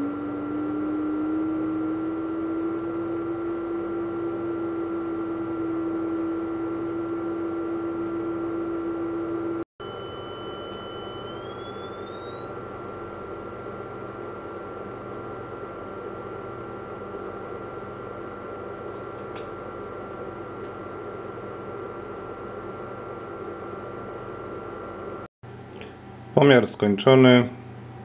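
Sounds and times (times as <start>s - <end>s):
sine-wave test tone: 0.0s - 25.3s
electrical hum and hiss: 0.0s - 28.0s.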